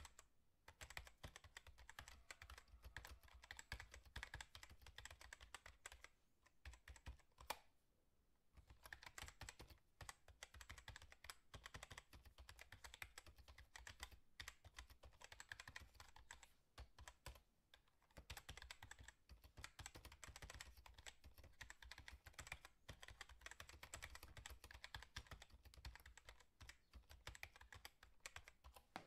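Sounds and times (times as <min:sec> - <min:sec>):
rapid clicking and tapping: 0:18.1 - 0:29.0.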